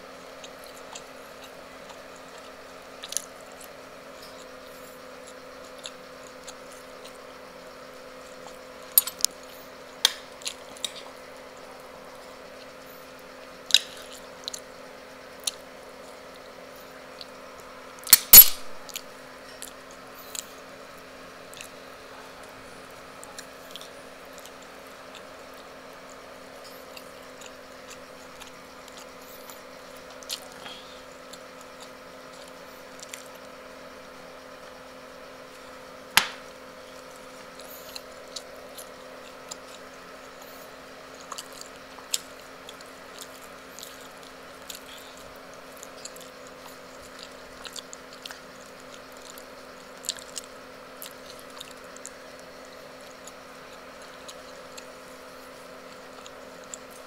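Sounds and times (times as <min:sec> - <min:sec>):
steady low hum: 0:00.0 - 0:57.0
wet chewing mouth sounds: 0:00.2 - 0:07.5, 0:15.4 - 0:16.2, 0:21.4 - 0:33.5, 0:36.9 - 0:57.0
loud sharp clack: 0:18.2 - 0:18.7.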